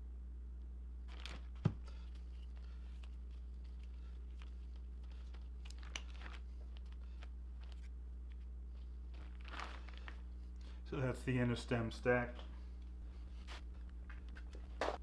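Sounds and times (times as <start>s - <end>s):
steady low hum: 0.0s - 15.0s
plastic sheeting crinkling: 1.1s - 10.8s.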